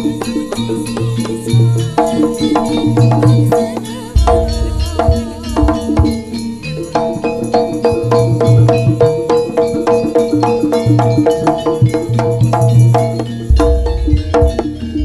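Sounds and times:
tuned bronze percussion strikes: 0:00.0 - 0:15.0
low drum beats: 0:04.2 - 0:06.4, 0:13.4 - 0:15.0.

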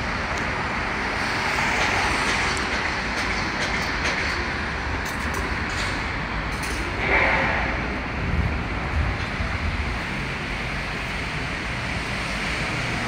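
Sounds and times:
city street traffic: 0:00.0 - 0:13.0.

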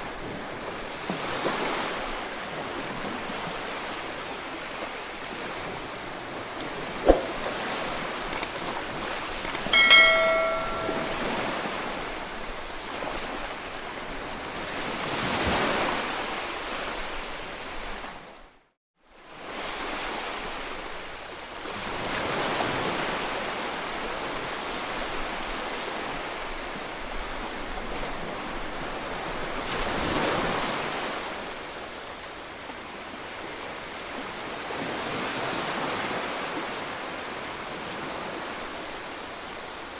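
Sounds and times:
bell-like ring: 0:09.7 - 0:11.8.

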